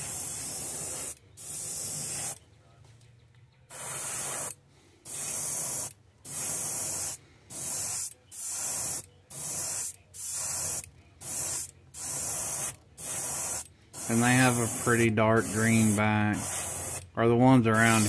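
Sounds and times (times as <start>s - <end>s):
airbrush spraying hiss: 0.0s - 2.4s, 3.7s - 17.1s, 17.7s - 18.0s.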